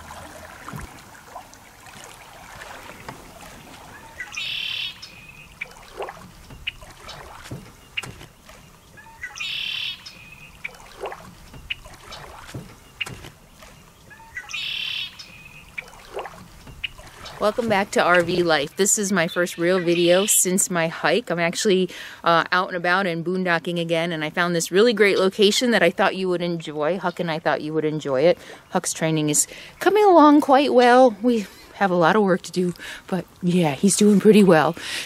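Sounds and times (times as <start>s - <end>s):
buzzy rasping bird call: 3.9s - 5.8s, 9.0s - 10.8s, 14.1s - 15.9s
bird chirps and ticks: 4.0s - 18.8s.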